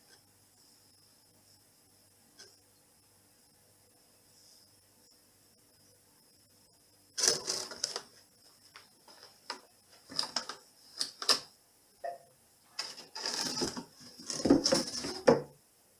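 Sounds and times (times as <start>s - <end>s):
cardboard box scraping and rustling: 13.0s - 15.3s.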